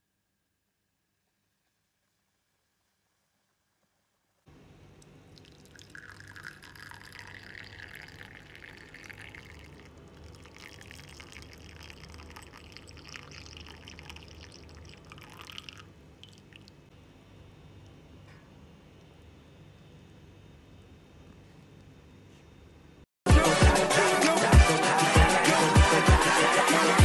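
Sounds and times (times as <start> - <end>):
tea pouring into glass: 5.4 - 16.7
dripping: 5.4 - 16.8.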